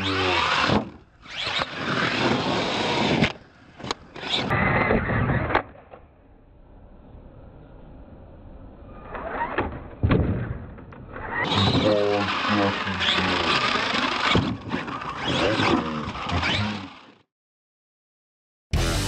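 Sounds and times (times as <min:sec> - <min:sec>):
radio-controlled truck on dirt: 0:00.0 - 0:06.1, 0:08.9 - 0:17.3
rock music with electric guitar: 0:18.7 - 0:19.0.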